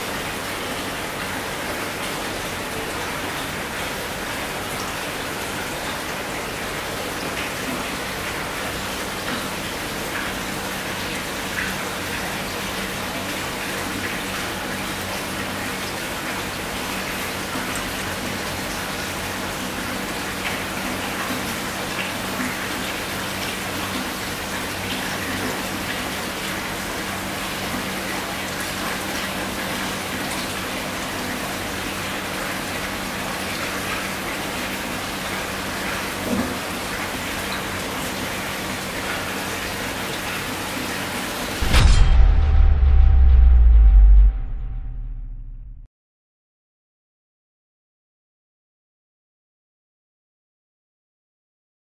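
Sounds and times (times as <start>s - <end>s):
low hum: 41.6s - 45.9s.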